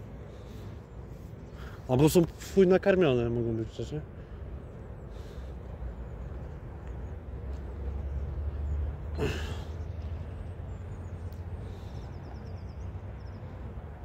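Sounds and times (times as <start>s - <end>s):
steady low rumble: 0.0s - 2.4s.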